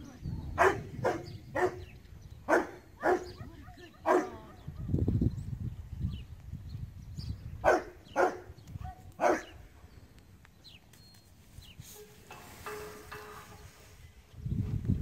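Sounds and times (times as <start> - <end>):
dog barking: 0.6 - 1.8, 2.5 - 4.5, 7.6 - 9.6.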